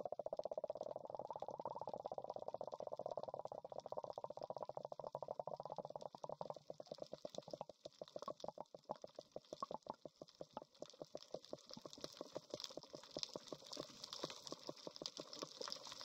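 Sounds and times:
crackle of small clicks: 0:00.0 - 0:16.0.

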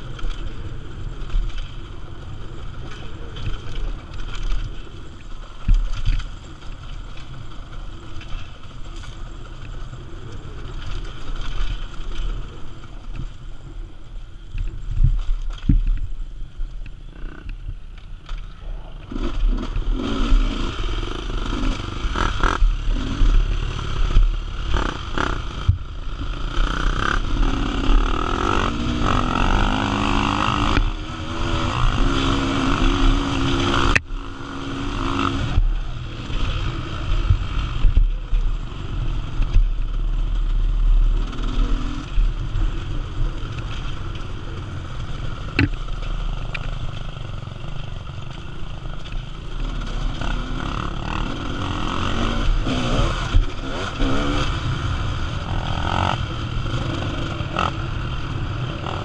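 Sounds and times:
wind rumble on microphone: 0:00.0 - 0:59.0
motorcycle engine revving: 0:19.0 - 0:59.0.

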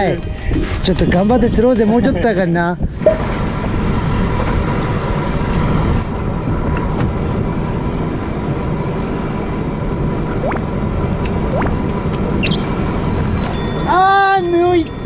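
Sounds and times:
wind: 0:00.0 - 0:15.0
water noise: 0:02.9 - 0:13.9
boat engine droning: 0:02.9 - 0:15.0
short rising squeaks: 0:12.4 - 0:13.8.

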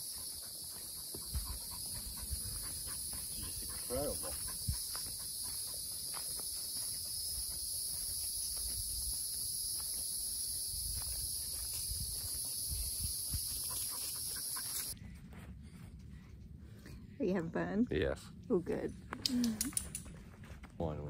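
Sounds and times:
insect chorus buzzing: 0:00.0 - 0:15.0
footsteps on sandy dirt: 0:00.0 - 0:16.1.

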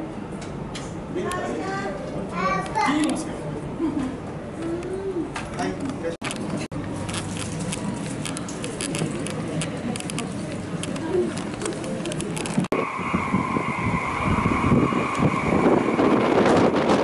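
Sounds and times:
strong wind buffeting microphone: 0:10.1 - 0:17.0.

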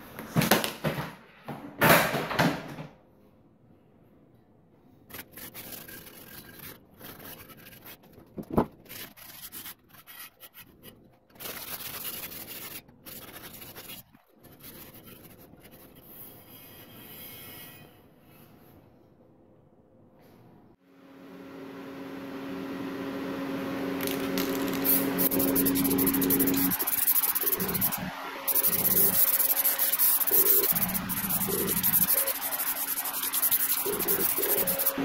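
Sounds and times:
cloth rag rubbing on steel wheel: 0:24.8 - 0:35.0.

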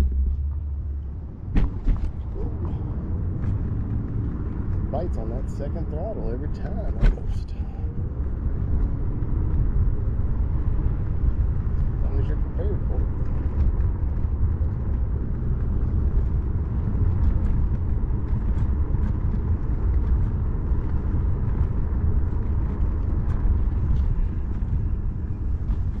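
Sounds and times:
wind on microphone: 0:06.6 - 0:26.0.

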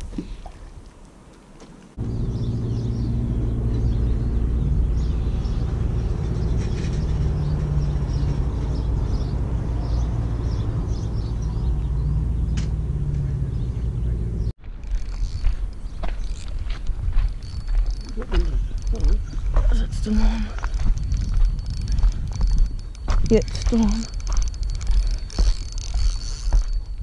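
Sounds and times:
steady low rumble: 0:02.0 - 0:27.0
continuous hum: 0:13.4 - 0:27.0.

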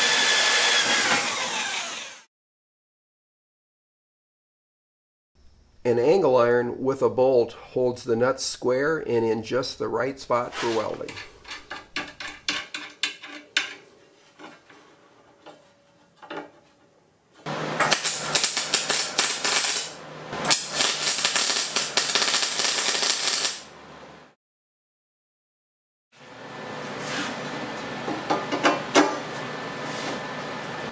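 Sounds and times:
welder arc crackling: 0:17.5 - 0:23.8.

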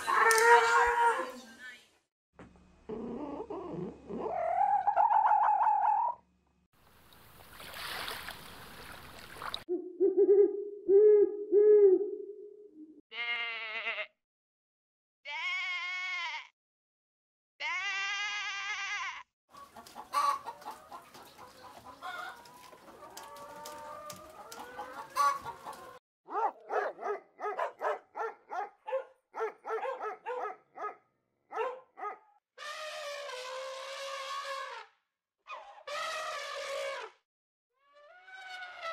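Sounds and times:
sheep bleating: 0:13.1 - 0:14.2, 0:15.3 - 0:16.5, 0:17.6 - 0:19.2
hens clucking: 0:19.5 - 0:26.0.

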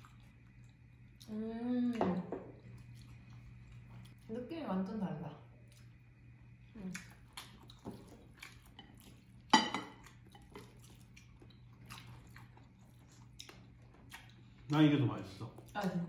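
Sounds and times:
faint steady hum: 0:00.0 - 0:16.0
chopsticks tapping ceramic plates: 0:09.5 - 0:10.5.

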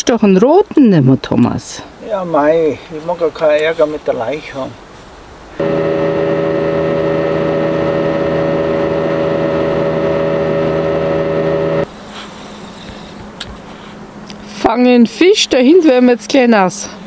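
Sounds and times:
motorboat engine droning: 0:05.6 - 0:14.2.

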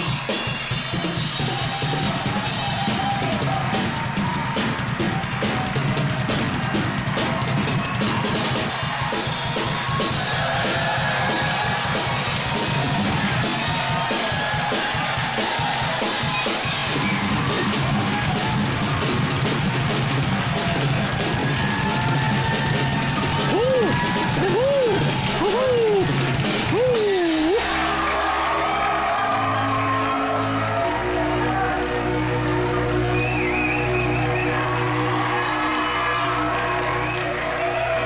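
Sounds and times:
drum kit rock beat: 0:00.0 - 0:29.4.

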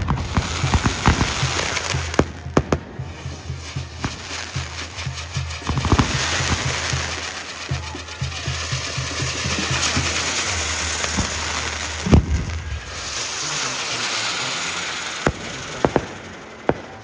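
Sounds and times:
firework bangs: 0:00.0 - 0:17.0
firework sparks hissing and crackling: 0:00.0 - 0:17.0.

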